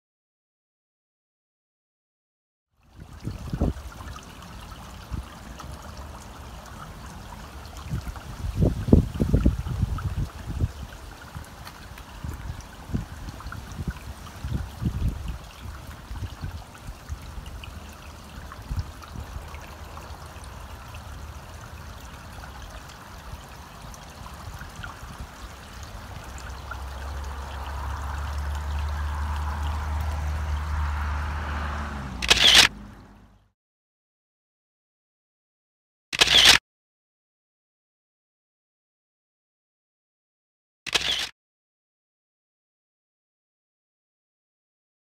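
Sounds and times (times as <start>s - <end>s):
water trickling into pond: 2.7s - 33.5s, 40.9s - 41.3s.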